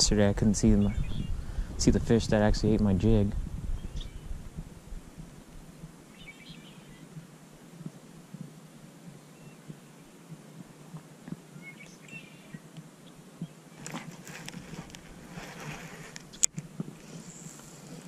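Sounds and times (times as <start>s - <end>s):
faint bird chirps: 3.7s - 4.4s, 6.1s - 7.2s, 9.2s - 10.2s, 11.5s - 14.0s.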